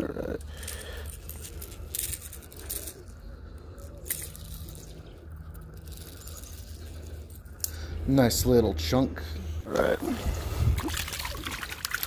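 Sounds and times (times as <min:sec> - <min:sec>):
water splashing and dripping: 0:10.7 - 0:12.0.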